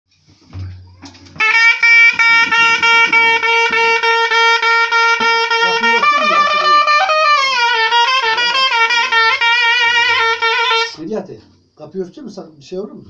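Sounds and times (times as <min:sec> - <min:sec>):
plucked long-necked lute melody: 0:05.2 - 0:07.3.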